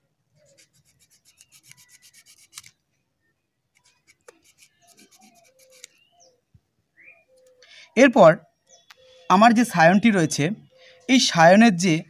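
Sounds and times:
small blade scraping stem: 0.4 - 2.8, 3.7 - 6.0.

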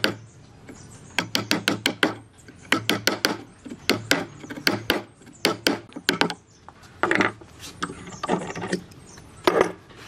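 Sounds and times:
sharp knocks on wood: 1.2 - 6.4.

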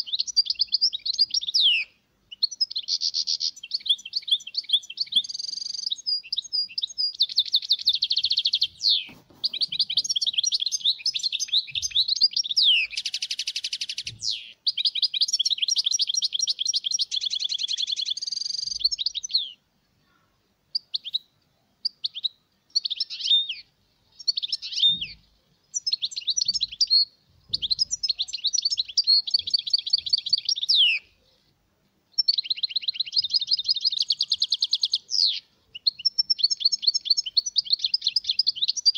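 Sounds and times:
finch song with buzzy trills: 20.7 - 31.5.

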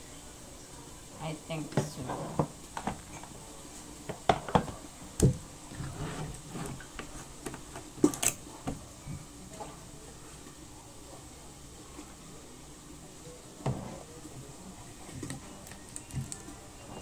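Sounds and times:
kitchenware knocking and clinking: 4.1 - 4.8.

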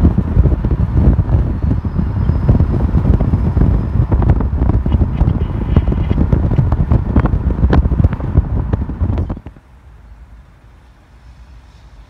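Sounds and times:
wind buffeting microphone: 0.0 - 9.6.

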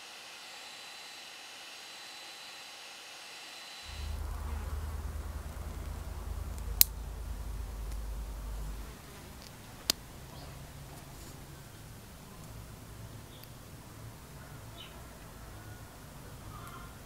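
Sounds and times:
faint hiss: 0.0 - 17.0
low rumble: 3.9 - 13.1.

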